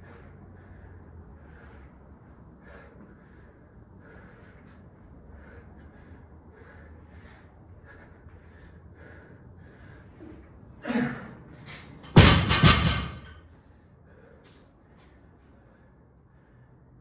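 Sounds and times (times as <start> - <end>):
barbell dropped on floor: 12.0 - 13.3.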